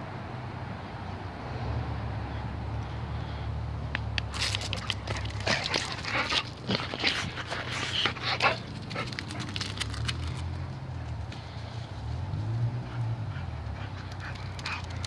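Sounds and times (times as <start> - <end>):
dog scrabbling and scuffing: 4.2 - 10.7.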